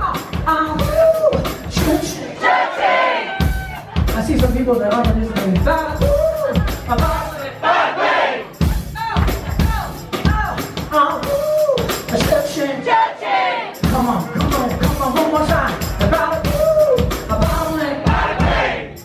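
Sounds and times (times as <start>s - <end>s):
live rock band playing: 0.0s - 2.2s, 3.3s - 7.6s, 8.4s - 12.7s, 13.8s - 19.0s
drum kit beating: 0.0s - 2.4s, 3.2s - 12.8s, 13.7s - 19.0s
crowd shouting along: 2.1s - 4.0s, 7.4s - 9.9s, 12.8s - 13.8s, 17.9s - 19.0s
person singing: 13.8s - 18.6s.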